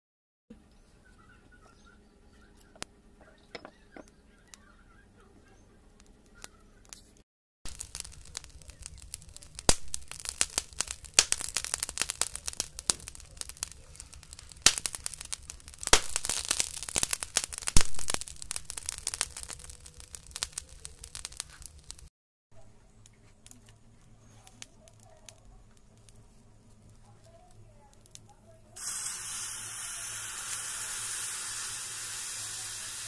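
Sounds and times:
wood fire crackling and popping: 0:07.6 - 0:22.1, 0:23.0 - 0:33.0.

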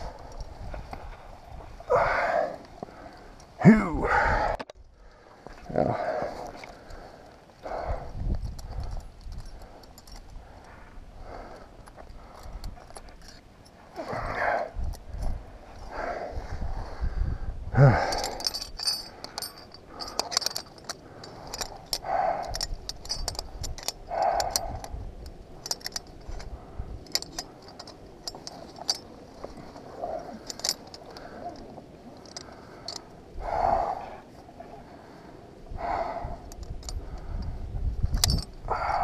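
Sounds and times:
carabiners clinking on metal: 0:06.2 - 0:15.4, 0:17.8 - 0:34.4, 0:35.8 - 0:39.0.

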